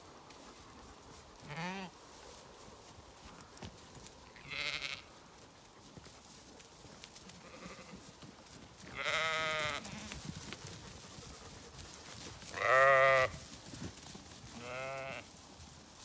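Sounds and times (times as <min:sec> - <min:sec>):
sheep bleating: 0:01.5 - 0:01.9, 0:04.4 - 0:05.1, 0:07.4 - 0:08.0, 0:08.9 - 0:10.2, 0:12.5 - 0:13.4, 0:14.6 - 0:15.3.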